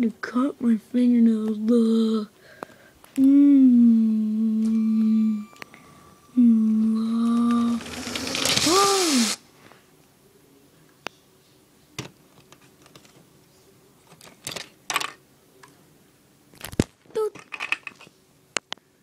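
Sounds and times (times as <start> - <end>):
plastic toy pieces clicking: 7.5 - 9.4, 17.3 - 18.1.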